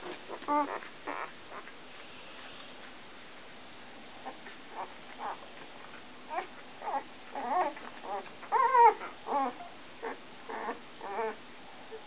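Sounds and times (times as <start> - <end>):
puppies whining: 0.0 - 1.8, 4.2 - 12.0.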